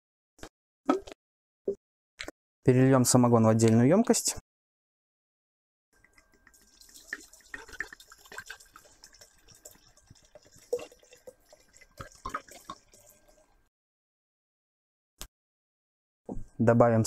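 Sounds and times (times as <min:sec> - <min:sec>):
liquid splashing into glass jar: 0:06.0 - 0:13.6.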